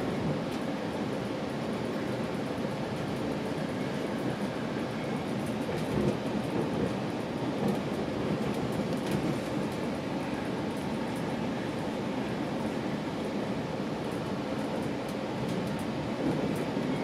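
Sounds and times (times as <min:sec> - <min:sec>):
train rumbling on track: 0:00.0 - 0:17.0.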